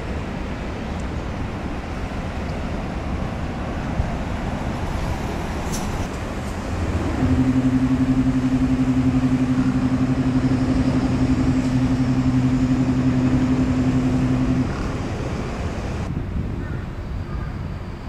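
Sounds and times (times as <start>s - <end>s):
outdoor background noise: 0.0s - 18.0s
ship's horn long low blast: 6.2s - 16.1s.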